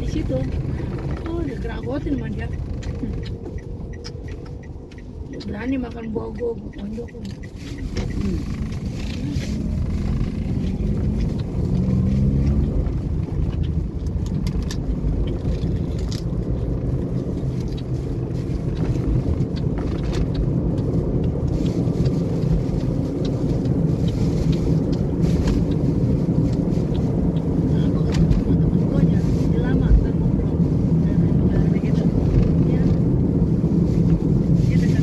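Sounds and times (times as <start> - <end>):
road rumble: 0.0 - 35.0
vehicle engine drone: 0.0 - 35.0
faint clicks: 0.4 - 11.6.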